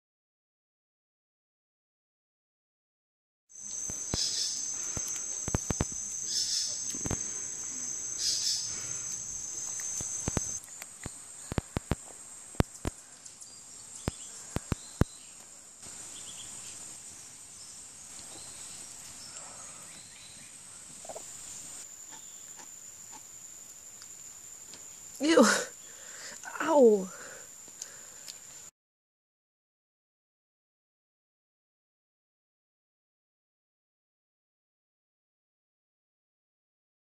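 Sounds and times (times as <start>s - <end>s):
insects trilling: 3.5s - 28.7s.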